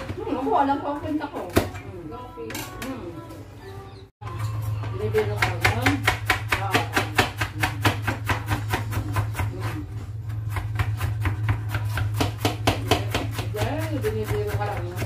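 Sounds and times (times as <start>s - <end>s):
knife chopping on plastic board: 5.2s - 15.0s.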